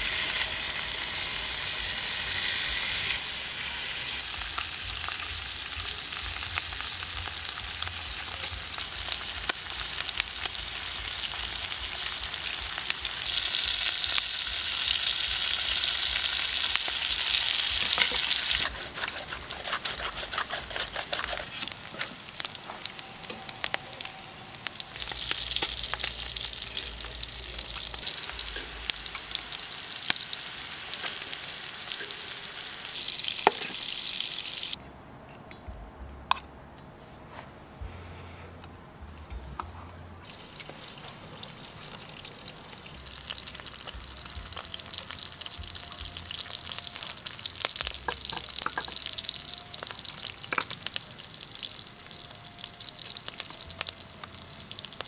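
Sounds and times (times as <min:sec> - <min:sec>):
meat sizzling in a frying pan: 0:00.0 - 0:34.8, 0:40.2 - 0:55.0
metal tongs clicking and scraping: 0:17.9 - 0:22.0.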